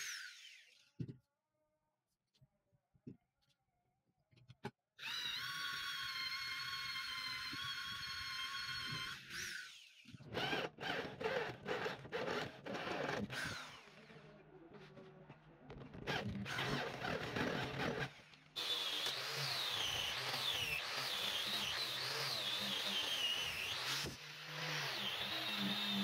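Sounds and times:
electric drill boring into metal: 5.0s - 14.2s, 16.1s - 26.0s.

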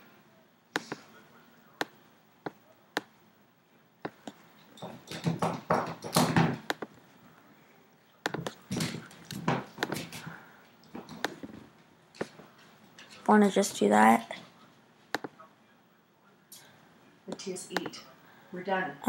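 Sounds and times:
computer mouse clicking: 8.2s - 8.6s.

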